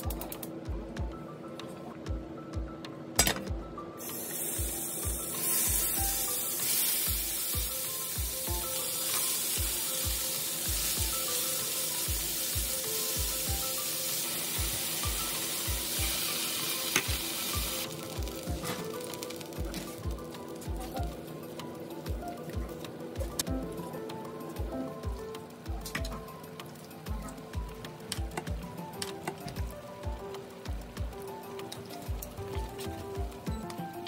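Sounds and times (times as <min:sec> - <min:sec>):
food sizzling in hot oil: 0:04.0 - 0:22.2.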